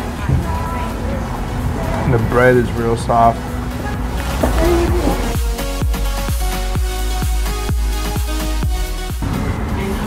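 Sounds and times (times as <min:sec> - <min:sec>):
electronic music with heavy beat: 0:03.7 - 0:09.3.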